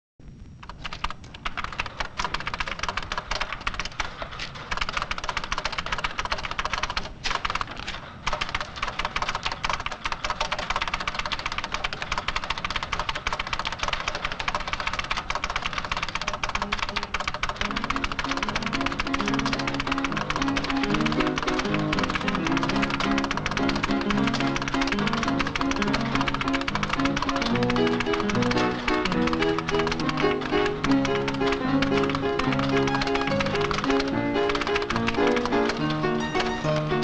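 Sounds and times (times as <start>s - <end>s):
typing on keyboard: 0.6s - 37.0s
dot-matrix printer chatter: 0.7s - 37.0s
music: 16.4s - 37.0s.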